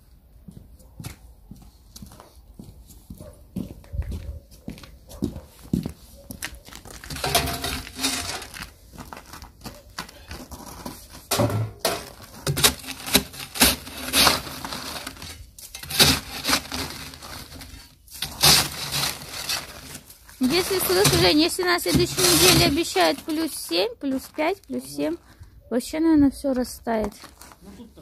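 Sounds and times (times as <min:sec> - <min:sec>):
shovel scraping snow and ice: 0:06.8 - 0:09.4, 0:10.5 - 0:25.2.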